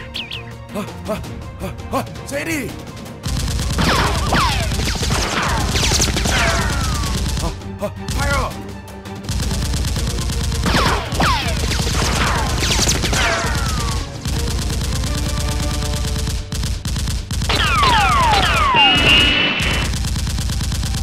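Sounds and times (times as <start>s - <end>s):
automatic gunfire bursts: 3.2s - 7.6s, 9.2s - 21.0s.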